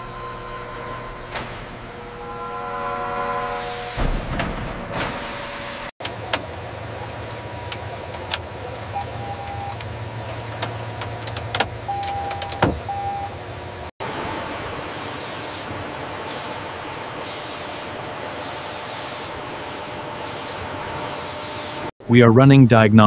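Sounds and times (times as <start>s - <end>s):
factory machinery noise: 0.0s - 21.9s.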